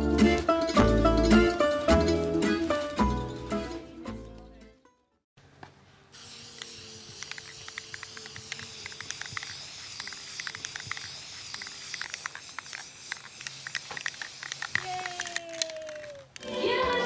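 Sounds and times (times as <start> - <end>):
spray paint can hissing: 6.1 - 16.5.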